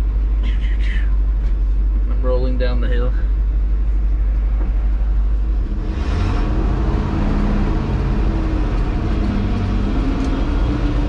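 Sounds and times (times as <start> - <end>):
road and wind rumble: 0.0 - 11.0
truck engine running: 0.0 - 11.0.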